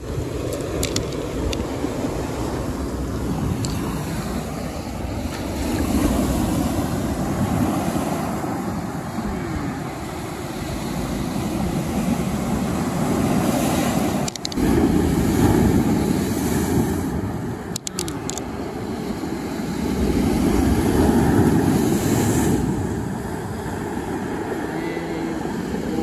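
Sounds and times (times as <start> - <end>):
wind on microphone: 0.0 - 26.0
clicks: 14.2 - 14.6, 17.7 - 18.4.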